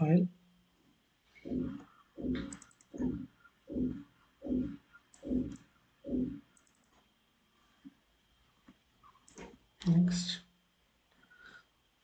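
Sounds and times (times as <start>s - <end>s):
computer mouse clicking: 1.5s - 3.2s, 4.5s - 7.0s, 9.1s - 9.5s.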